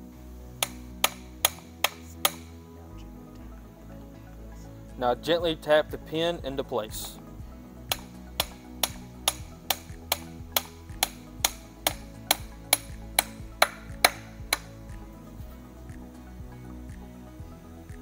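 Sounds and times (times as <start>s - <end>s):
background music: 0.0s - 18.0s
hammer tapping metal pin: 0.6s - 2.5s, 7.9s - 14.8s.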